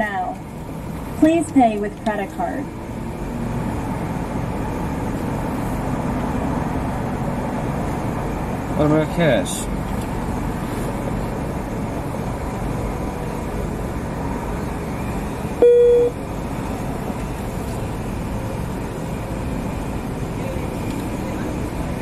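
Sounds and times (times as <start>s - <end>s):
short electronic beep: 15.6s - 16.2s.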